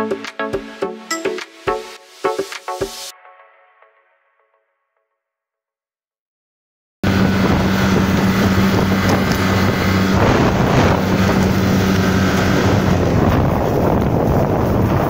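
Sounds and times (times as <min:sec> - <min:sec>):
motorboat engine humming: 0:07.0 - 0:14.9
wind buffeting microphone: 0:07.0 - 0:15.0.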